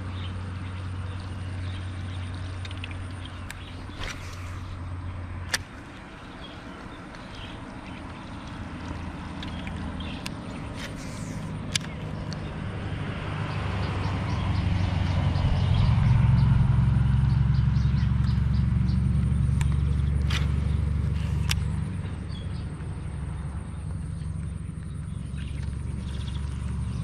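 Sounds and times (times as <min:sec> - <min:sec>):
vehicle engine droning: 0:00.0 - 0:27.0
sharp clicks: 0:05.4 - 0:06.1, 0:08.9 - 0:12.5.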